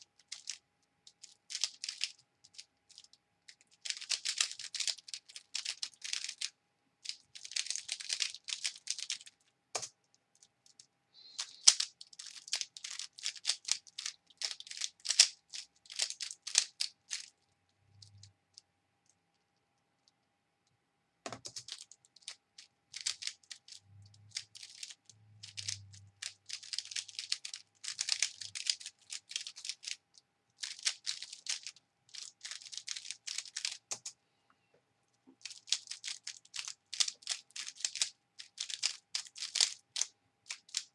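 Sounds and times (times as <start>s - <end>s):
puzzle cube clicking as turned: 0.1s - 18.3s, 21.3s - 34.2s, 35.4s - 40.9s.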